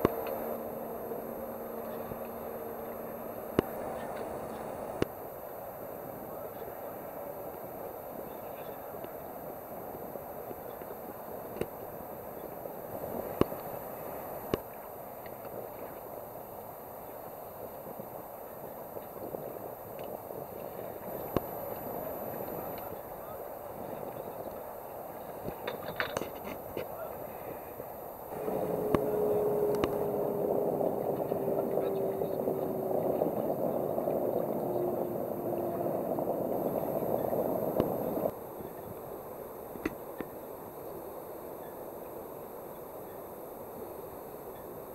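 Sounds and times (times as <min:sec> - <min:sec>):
faint hum: 0:00.0 - 0:44.9
water lapping around boat: 0:28.3 - 0:39.0.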